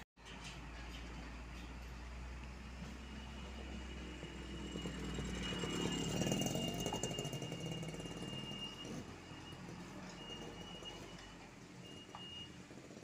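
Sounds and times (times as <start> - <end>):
diesel truck engine under load: 0.0 - 13.0
thin steady high tone: 3.0 - 12.6.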